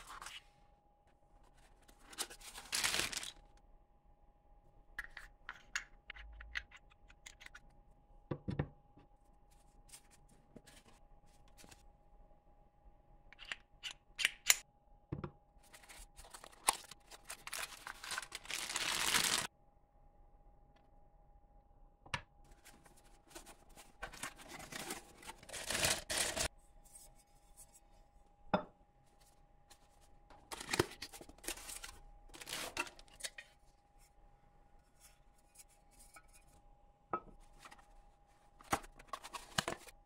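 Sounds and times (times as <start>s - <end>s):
cardboard rustling and scraping: 22.5s - 27.0s.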